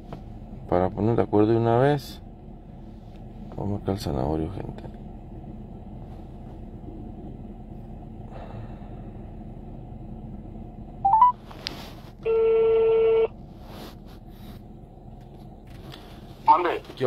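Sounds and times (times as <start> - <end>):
low background rumble: 0.0 - 17.0
ringback tone: 11.0 - 11.4, 12.2 - 13.3
rising phone tones: 11.0 - 11.4, 12.2 - 13.3.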